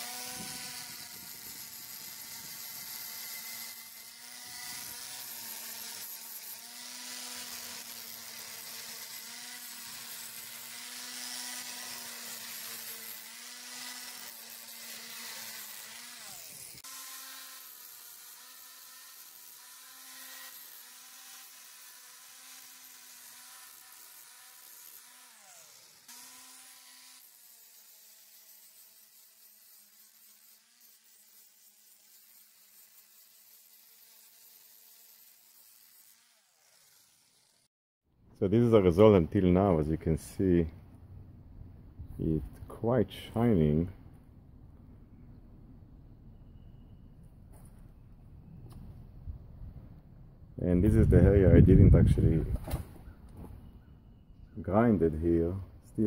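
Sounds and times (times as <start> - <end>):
angle grinder grinding metal: 0.0 - 37.7.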